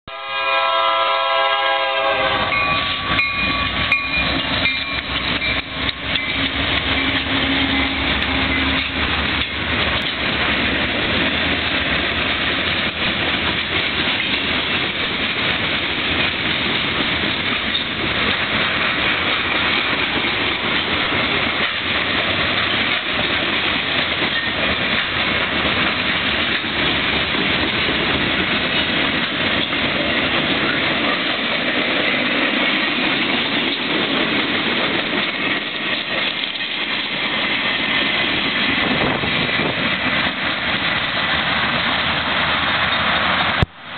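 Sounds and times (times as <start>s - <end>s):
locomotive horn: 0.1s - 4.0s, 6.2s - 9.1s
diesel locomotives running past: 0.1s - 43.9s
train wheels clickety-clack: 2.1s - 43.7s.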